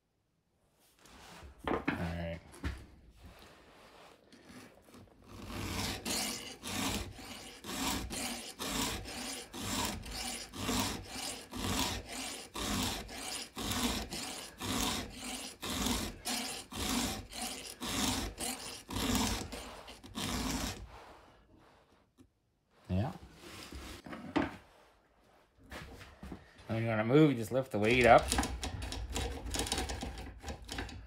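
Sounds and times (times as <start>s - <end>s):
file rasping on saw chain: 5.2s - 21.1s, 27.8s - 31.0s.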